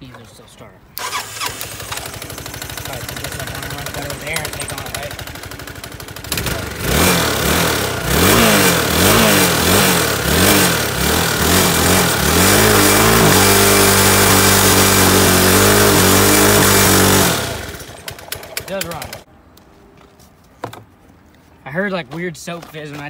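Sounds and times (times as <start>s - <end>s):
scooter engine revving: 1.0s - 19.3s.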